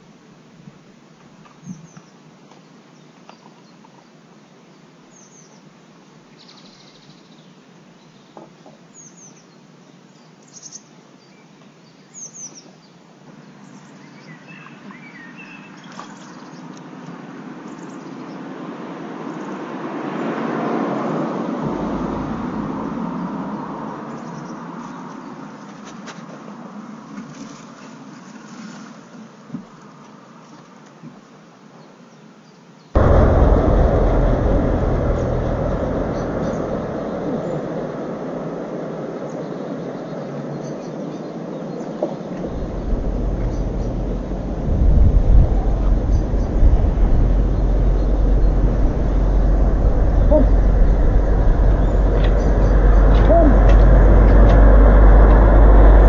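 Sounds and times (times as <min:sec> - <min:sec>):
vehicle passing: 0:19.8 - 0:24.2, 0:33.0 - 0:40.6, 0:42.4 - 0:56.0.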